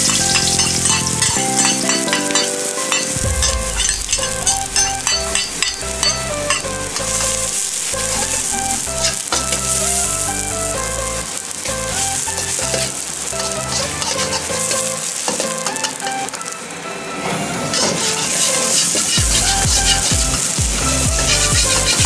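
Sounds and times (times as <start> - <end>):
metal ladle scraping wok: 0.0 - 9.9, 11.7 - 16.0
onions sizzling in oil: 0.0 - 16.6, 17.6 - 22.0.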